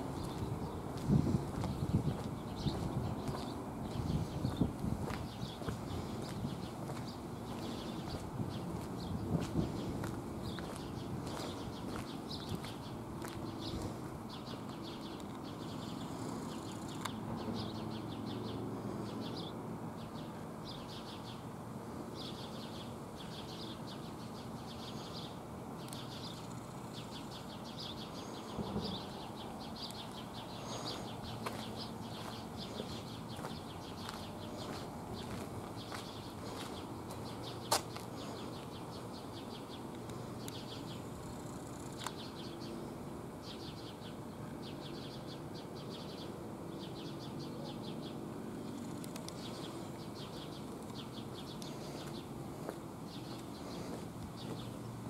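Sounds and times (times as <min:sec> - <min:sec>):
small birds trilling: 0:00.0 - 0:21.5, 0:22.1 - 0:55.0.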